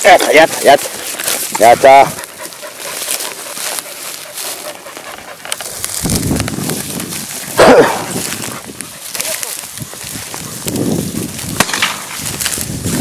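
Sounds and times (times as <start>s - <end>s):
dry reeds crackling and rustling: 0.0s - 13.0s
dog cry: 7.5s - 8.2s.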